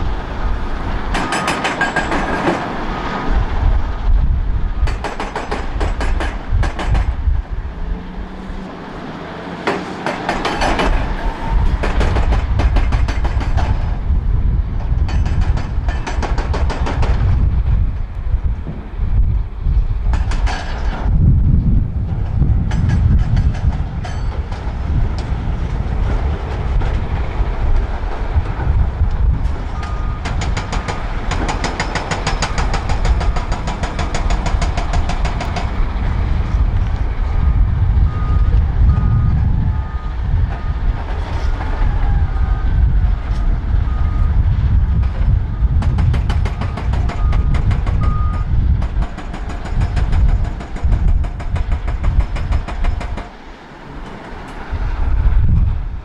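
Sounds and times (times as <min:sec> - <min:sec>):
reversing alarm beeping: 0:01.2 - 0:01.9, 0:29.8 - 0:30.4, 0:37.4 - 0:40.9, 0:43.3 - 0:44.4, 0:46.5 - 0:48.5
heavy diesel engine running: 0:21.8 - 0:51.8.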